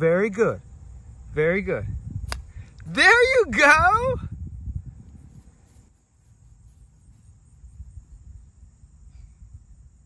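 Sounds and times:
crickets trilling: 0.0 - 10.0.

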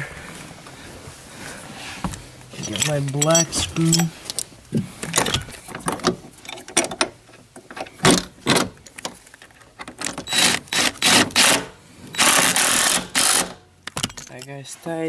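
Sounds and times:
clicks and knocks of metal hardware: 2.1 - 10.4, 13.8 - 14.6
impact driver running: 10.3 - 13.6.

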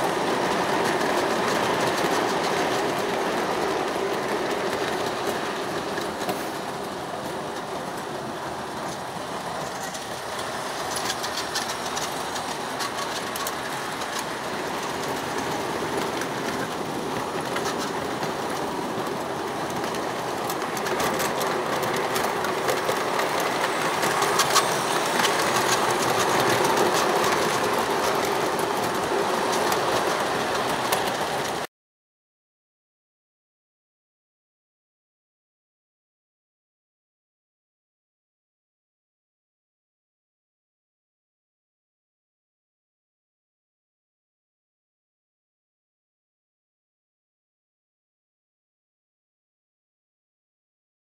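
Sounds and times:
model train wheels and motors whirring: 0.0 - 31.7
wheels clicking on rails: 0.0 - 31.7.

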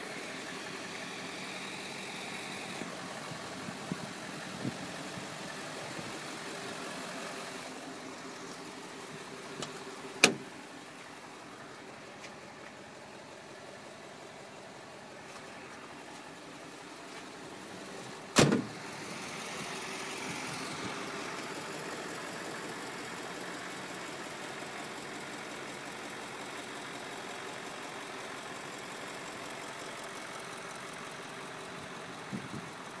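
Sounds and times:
diesel truck engine idling: 0.0 - 33.0
loud sharp thump: 10.2 - 10.5, 18.4 - 18.8.

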